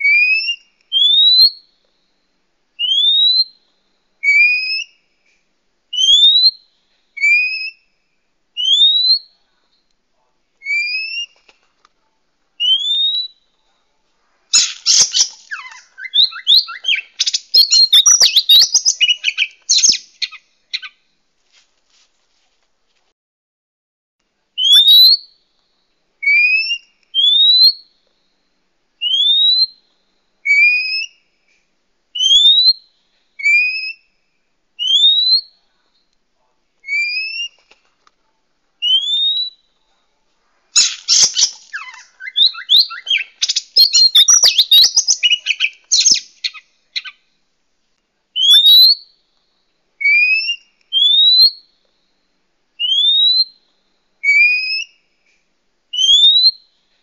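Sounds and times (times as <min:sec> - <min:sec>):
bird scratchy chattering song: 0:14.5 - 0:21.0, 0:40.8 - 0:47.2
bird rising whistles: 0:14.6 - 0:20.0, 0:40.8 - 0:46.6.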